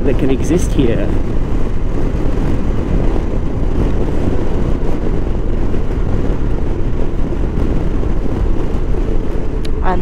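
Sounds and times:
motorcycle engine rumble: 0.0 - 10.0
wind and road noise: 0.0 - 10.0.

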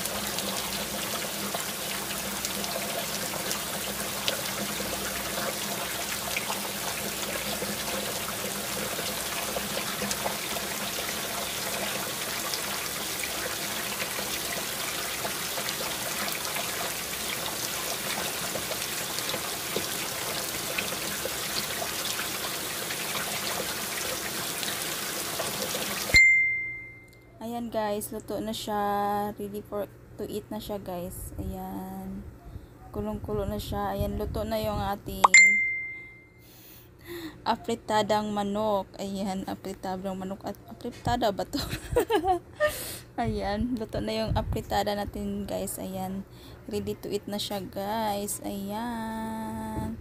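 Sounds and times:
stew bubbling in a pan: 0.0 - 26.2.

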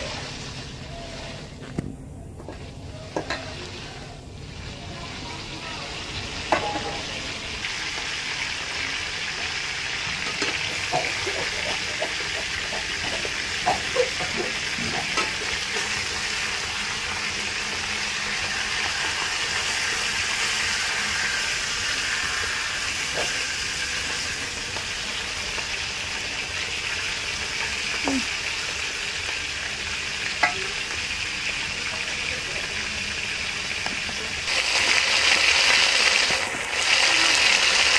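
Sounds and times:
fish sizzling in hot oil: 4.4 - 37.9
metal spoon clinking on wok: 30.4 - 30.7.

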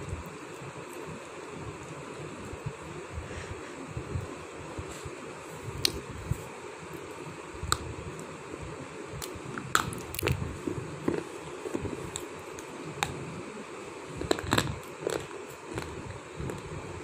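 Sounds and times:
steady background hiss: 0.0 - 17.0
person chewing stone crunches: 14.2 - 16.6.

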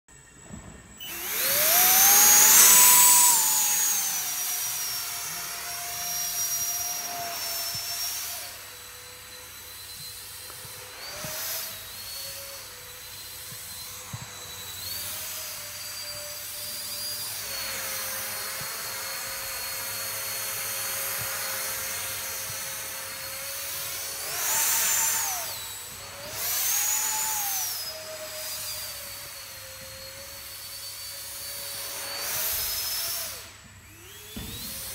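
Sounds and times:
electric ducted fan whining: 0.4 - 29.9.

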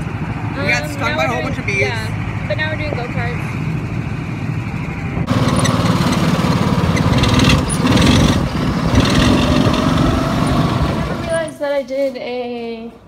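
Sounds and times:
go-kart engine running: 5.2 - 11.5.

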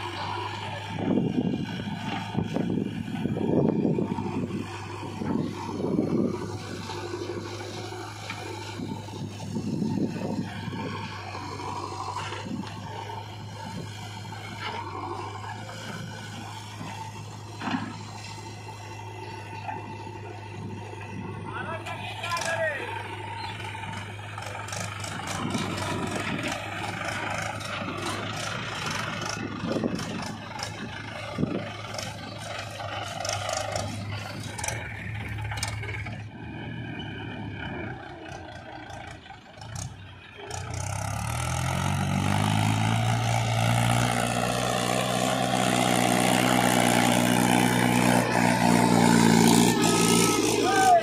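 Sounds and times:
diesel machinery running: 0.0 - 51.0
tractor diesel engine revving: 0.0 - 51.0.

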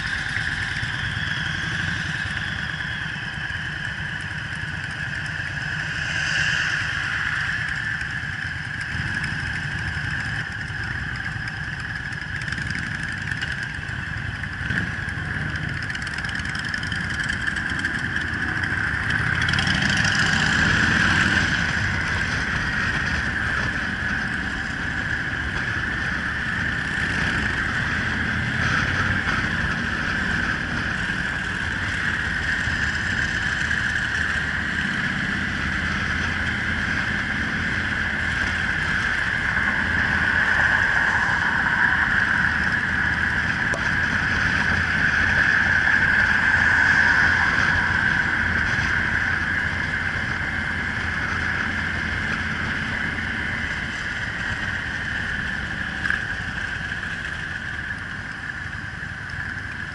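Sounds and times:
motorcycle engine drone: 0.0 - 59.9
wind on microphone: 16.8 - 59.9.

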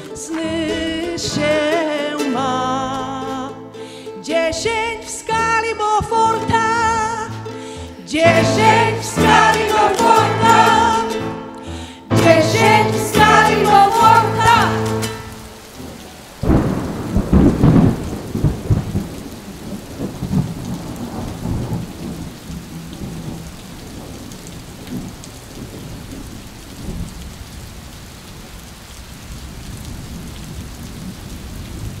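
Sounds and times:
steady rain: 0.0 - 1.4, 6.1 - 32.0
thunderclap rumbling: 15.5 - 22.4.

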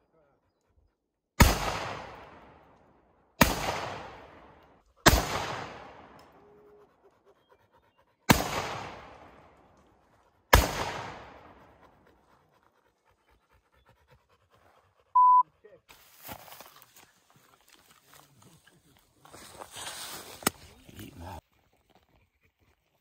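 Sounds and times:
gunshots with long echo: 1.4 - 6.4, 8.3 - 9.7, 10.5 - 11.8.

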